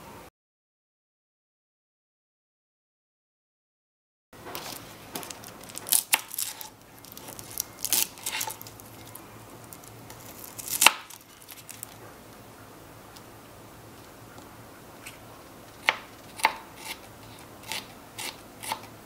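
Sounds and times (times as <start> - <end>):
papery skins peeling: 4.5 - 12.0.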